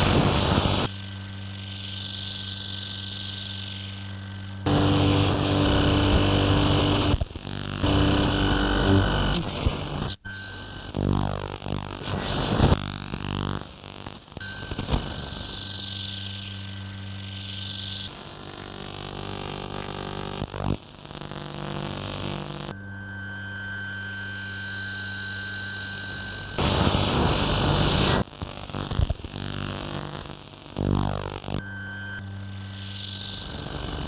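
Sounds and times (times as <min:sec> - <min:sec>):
low drone hum: 0:04.2 - 0:07.1.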